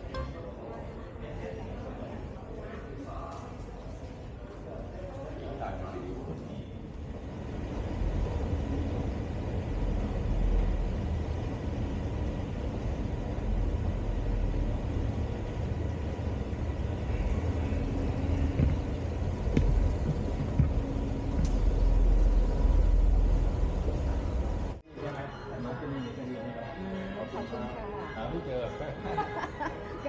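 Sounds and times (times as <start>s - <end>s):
faint hum: 0.0s - 24.8s
underground train rumbling: 6.8s - 24.8s.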